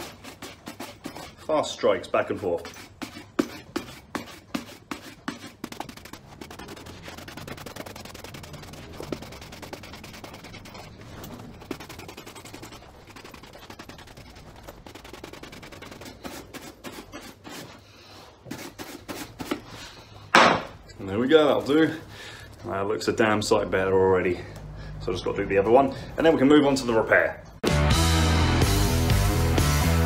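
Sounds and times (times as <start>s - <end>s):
shoe brush buffing leather boot: 0.0s - 19.6s.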